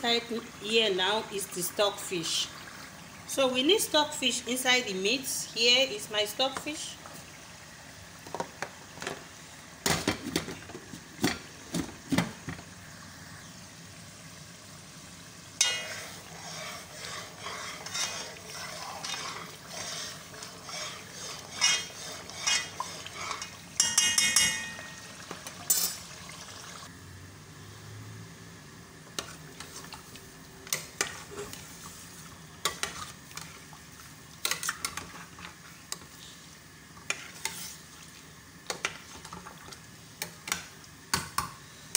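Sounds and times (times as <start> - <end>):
sauce sizzling in a pot: 12.7 - 26.9
metal pots and utensils clinking: 15.6 - 16.2, 21.5 - 26.1
spatula scraping in a pot: 15.6 - 25.0, 30.7 - 33.6, 37.0 - 38.0.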